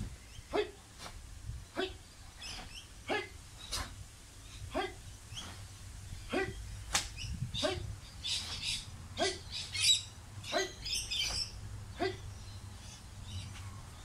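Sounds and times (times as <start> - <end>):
cloth swishing and snapping: 6.9 - 7.2.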